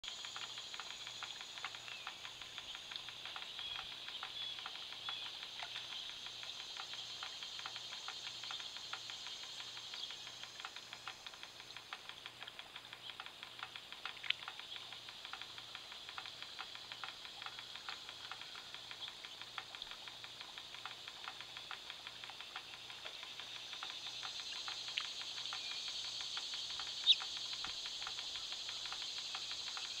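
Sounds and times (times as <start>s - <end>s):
steady high hiss: 0.0s - 30.0s
fountain jet splashing: 0.1s - 30.0s
water droplets pattering: 0.2s - 30.0s
bird chirp: 0.3s - 15.3s, 21.3s - 30.0s.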